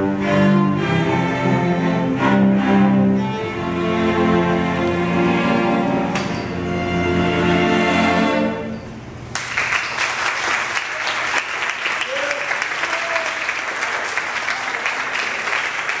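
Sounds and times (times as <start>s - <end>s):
audience applauding: 9.3s - 16.0s.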